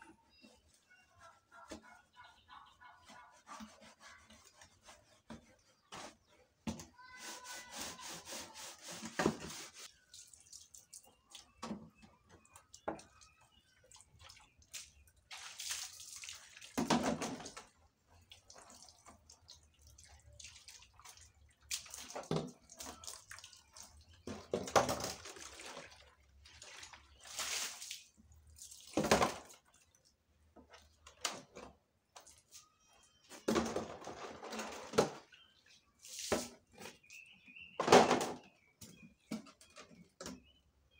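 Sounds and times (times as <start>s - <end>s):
water splashing at a tap: 9.3s - 31.1s.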